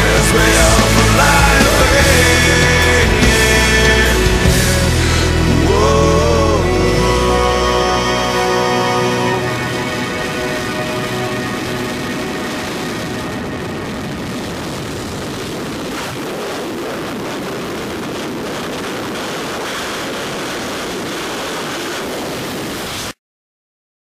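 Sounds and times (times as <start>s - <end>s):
music: 0.0s - 14.8s
wind rushing over microphone: 0.0s - 23.2s.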